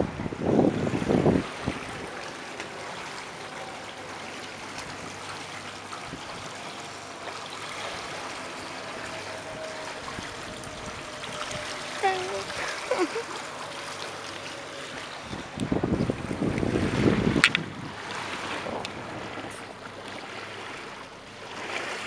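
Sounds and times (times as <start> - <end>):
wind gust on microphone: 0.0 - 2.6, 4.9 - 19.8
water trickling around boat hull: 0.0 - 22.0.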